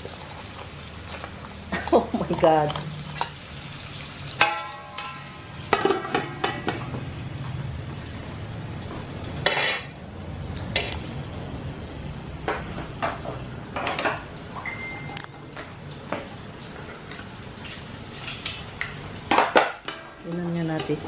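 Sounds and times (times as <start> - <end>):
frying sizzle: 0.0 - 21.0
pan lid clanking and ringing: 4.4 - 6.7
crabs knocking inside pan: 4.4 - 6.9.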